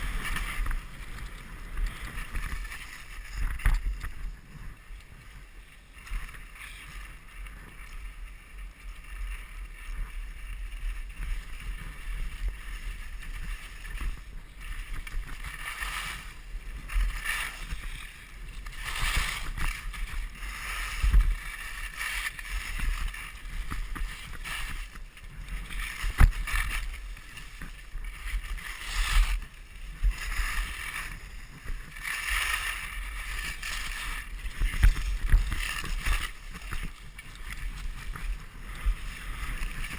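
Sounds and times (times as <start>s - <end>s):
wind buffeting microphone: 0.0s - 5.6s
skis hissing over snow: 0.0s - 39.9s.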